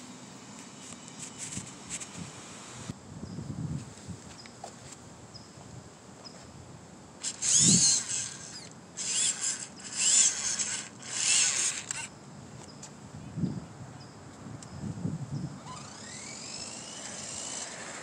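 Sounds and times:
electric motor whining: 7.2s - 12.1s, 15.6s - 18.0s.

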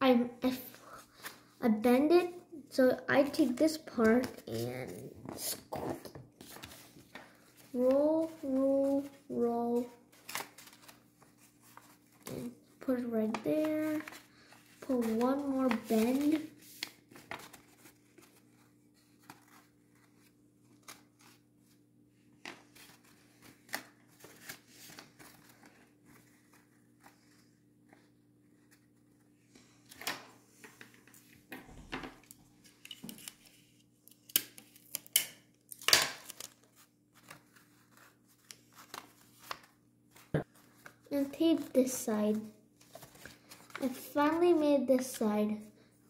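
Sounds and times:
paper rustling and crackling: 4.0s - 29.3s, 35.7s - 41.7s, 42.3s - 44.4s.

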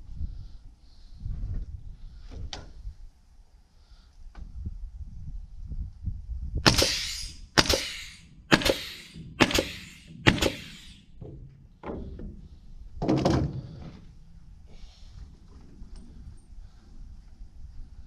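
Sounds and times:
sharp strikes with hiss: 6.7s - 11.1s.

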